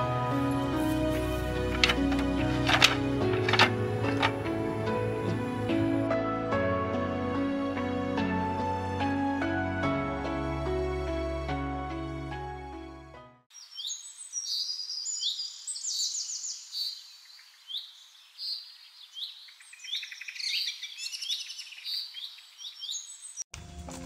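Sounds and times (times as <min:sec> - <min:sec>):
background music: 0:00.0 - 0:13.4
birds chirping: 0:13.5 - 0:23.5.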